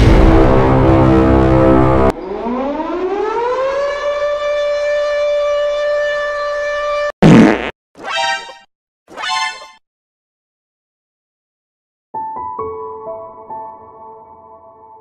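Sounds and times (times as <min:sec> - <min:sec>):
loud noisy blast: 0:00.0 - 0:02.2
siren-like wailing tone: 0:01.6 - 0:07.1.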